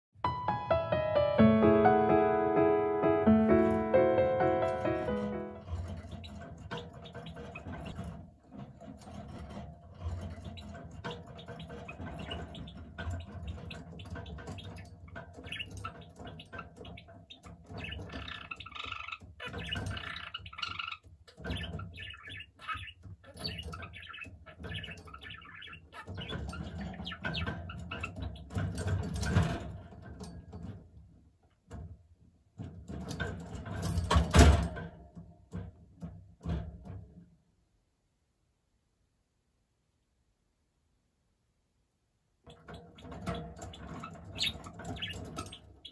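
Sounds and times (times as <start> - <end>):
budgerigar chirping and squawking: 5.1 - 8.1, 10.2 - 28.7, 42.5 - 45.9.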